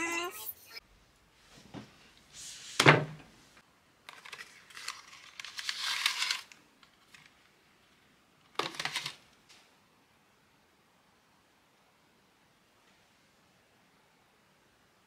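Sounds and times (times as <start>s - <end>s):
foil and plastic rustling: 4.1s - 7.2s.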